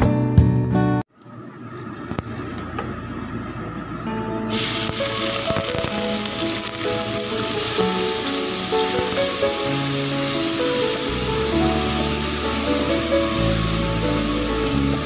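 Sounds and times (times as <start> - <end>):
background music: 3.9 - 15.0
garlic sizzling in hot oil: 4.5 - 15.0
oil hissing faintly: 4.5 - 15.0.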